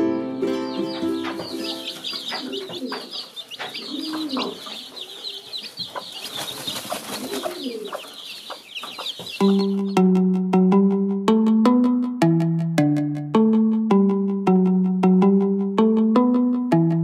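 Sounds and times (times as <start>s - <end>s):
chicks peeping: 0.3s - 10.0s.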